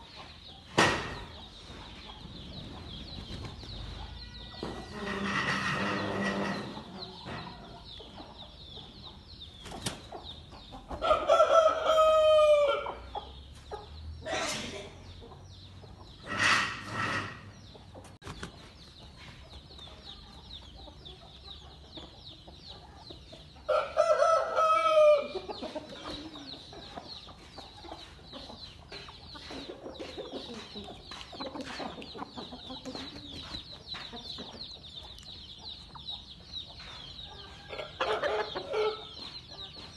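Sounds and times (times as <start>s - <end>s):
rooster crowing: 11.0s - 13.0s, 23.7s - 25.4s.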